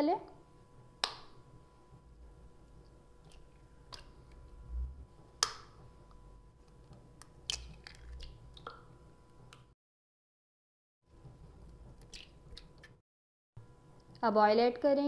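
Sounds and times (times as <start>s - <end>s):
eggshells cracking: 7.2s - 8.8s.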